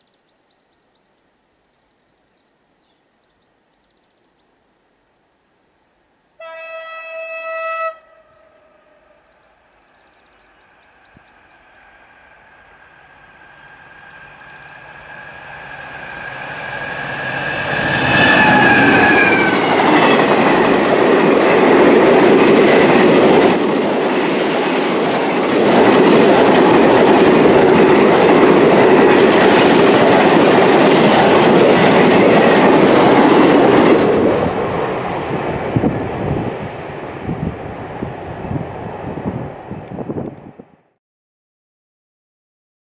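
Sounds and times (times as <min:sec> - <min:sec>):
diesel locomotive passing: 0:06.4 - 0:40.8
clickety-clack of train wheels: 0:18.1 - 0:36.2.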